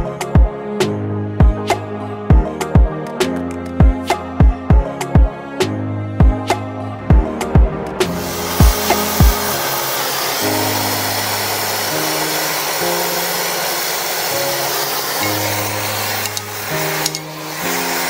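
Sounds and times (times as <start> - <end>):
background music with bass: 0.0 - 13.5
gas torch flame hissing: 8.0 - 18.0.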